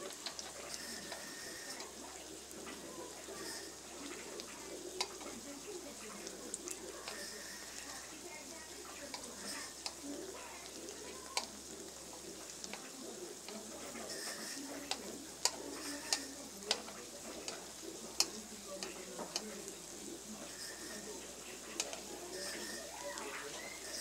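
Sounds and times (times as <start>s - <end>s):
food sizzling in oil: 0.0s - 24.0s.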